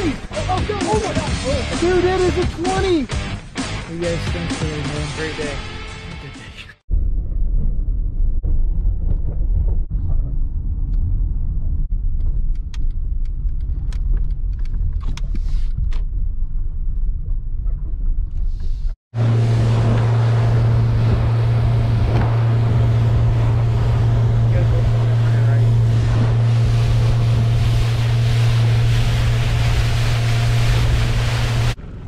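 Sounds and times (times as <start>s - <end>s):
wind rushing: 6.9s - 31.8s
road rumble inside car: 8.4s - 32.0s
outboard motor humming: 19.1s - 32.0s.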